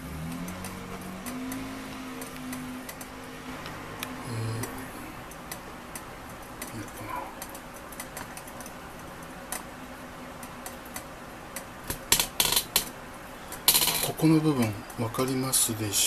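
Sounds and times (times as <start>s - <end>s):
light ticks and clicks: 0.2s - 9.7s.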